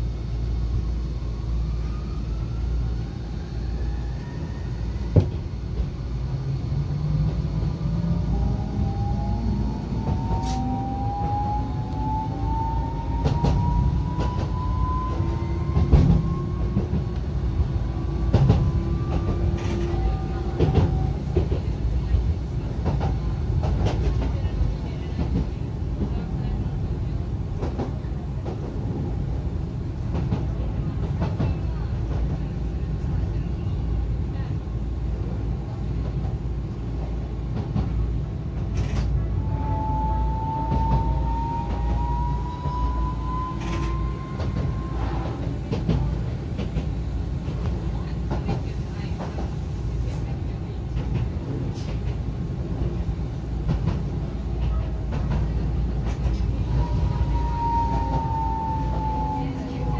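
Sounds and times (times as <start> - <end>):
tram rumble: 0.0 - 59.9
wheels clacking on rails: 12.5 - 17.4, 18.0 - 26.8, 40.4 - 59.9.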